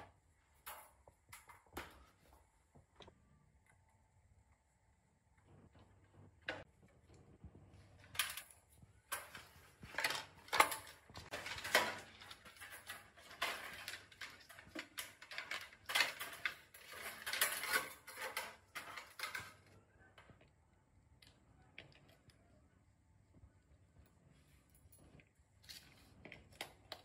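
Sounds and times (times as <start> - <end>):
loose metal parts clinking: 8.0 - 19.8.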